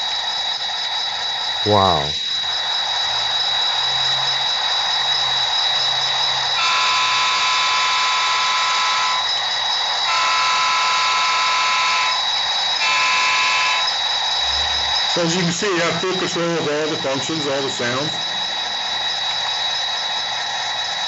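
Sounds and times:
model locomotive horn: 6.6 - 9.2, 10.0 - 12.2, 12.8 - 14.0.

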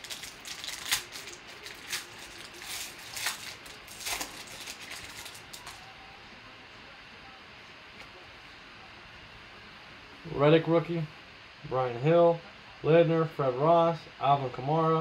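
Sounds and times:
cards being handled: 0.0 - 5.8
foil pack crinkling: 0.0 - 5.8.

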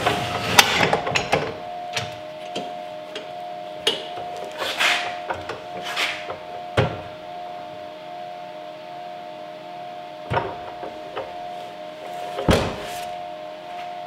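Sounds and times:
steady hum: 0.0 - 14.0
heavy thump: 12.4 - 13.0.

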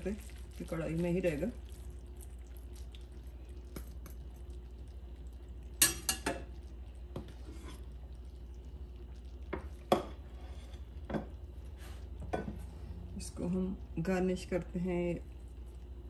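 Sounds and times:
low steady hum: 0.0 - 16.0.

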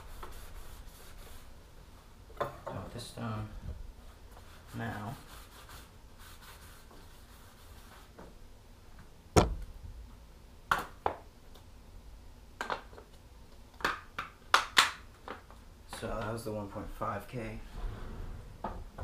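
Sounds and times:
whetstone case knocking on wood: 9.4 - 9.7.

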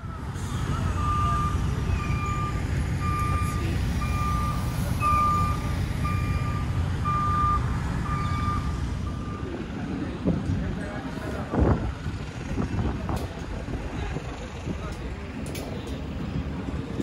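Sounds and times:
reversing alarm beeping: 0.0 - 9.6
low engine rumble: 0.0 - 17.0.

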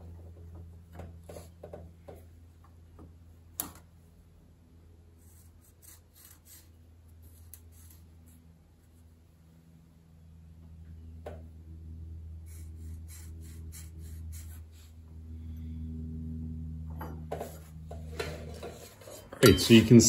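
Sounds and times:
low steady hum: 0.0 - 20.0
marker scratching on metal: 5.2 - 8.4, 12.4 - 14.9.

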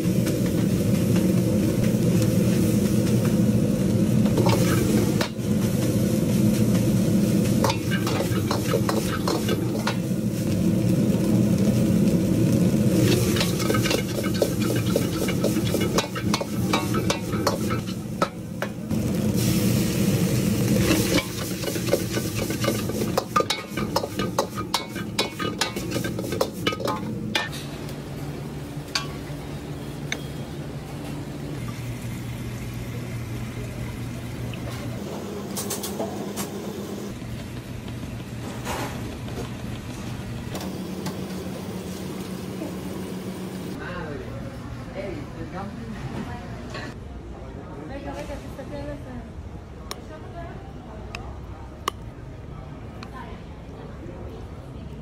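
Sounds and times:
rice sizzling in a wok: 0.0 - 30.0, 31.6 - 43.8
wok burner humming: 0.0 - 47.0
metal ladle scraping wok: 7.4 - 10.0, 13.0 - 18.2, 20.7 - 27.6.

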